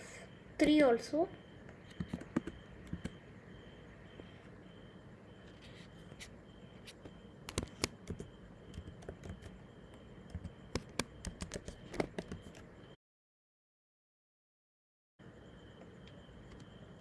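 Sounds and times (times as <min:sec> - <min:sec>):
faint steady high whine: 0:00.0 - 0:13.0, 0:15.2 - 0:17.0
computer keyboard typing: 0:01.9 - 0:03.2, 0:07.4 - 0:09.6, 0:10.3 - 0:12.7.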